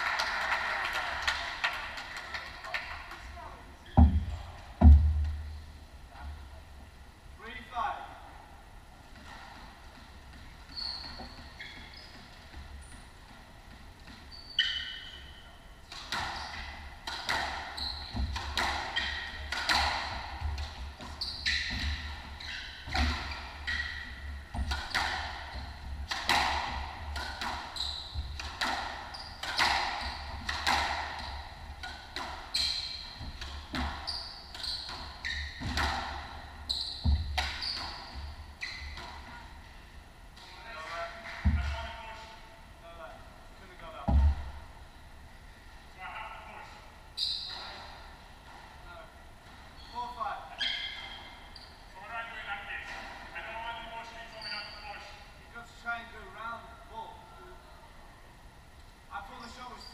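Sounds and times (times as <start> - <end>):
squash ball hitting rackets and walls: 4.0 - 5.5, 9.1 - 42.0
shoes squeaking on wooden floor: 9.2 - 15.5, 16.2 - 39.6, 47.2 - 48.0, 49.6 - 52.0, 54.1 - 55.1.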